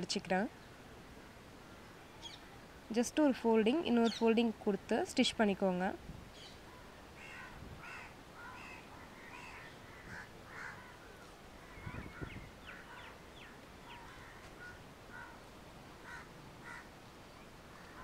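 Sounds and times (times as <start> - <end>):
crows cawing: 6.7 - 13.1, 13.9 - 15.4, 16.0 - 16.9.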